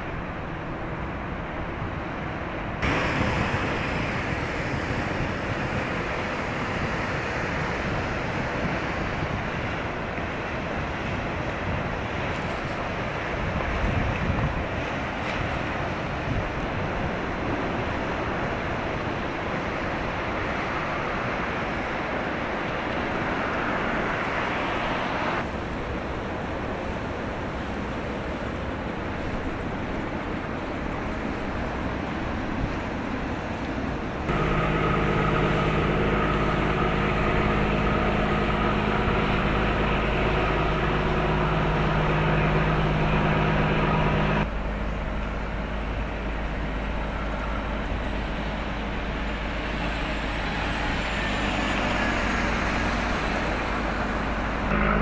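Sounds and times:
water rushing along ship hull: 0.0s - 55.0s
wind on microphone: 2.8s - 27.6s.

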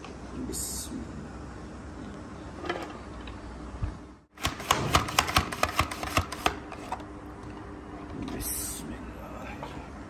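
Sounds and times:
vegetable cutter clicks and clacks: 4.4s - 6.6s.

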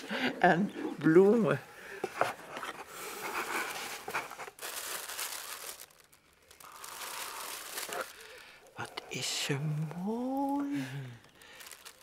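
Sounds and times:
tissue paper rustling: 2.2s - 10.7s, 11.4s - 12.0s.

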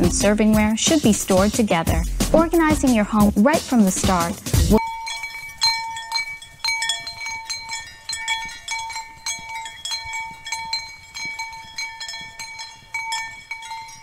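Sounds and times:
metal bells clanking: 4.7s - 14.0s.

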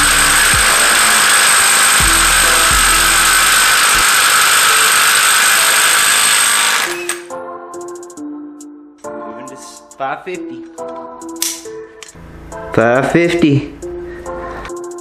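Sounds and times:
impact wrench hammering: 0.0s - 7.3s.

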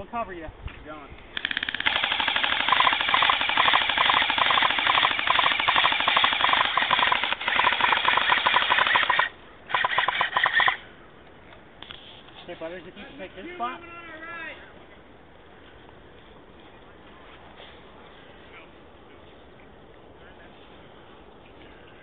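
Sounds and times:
airsoft rifles firing full-auto: 1.4s - 10.8s.

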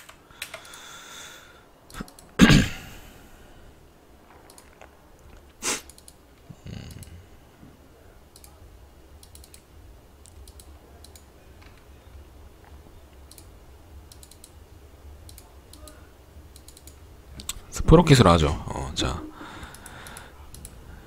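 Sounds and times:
computer mouse clicks: 0.0s - 0.8s, 1.9s - 2.4s, 4.4s - 6.2s, 8.3s - 8.6s, 9.2s - 11.9s, 13.1s - 13.5s, 14.1s - 14.6s, 15.2s - 17.6s, 19.6s - 20.8s
low steady hum: 0.0s - 21.0s.

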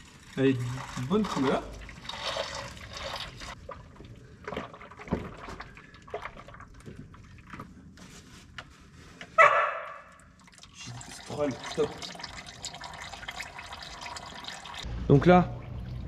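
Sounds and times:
oil draining into container: 0.0s - 7.7s, 10.2s - 14.9s
light clicks and drips: 0.0s - 14.8s.

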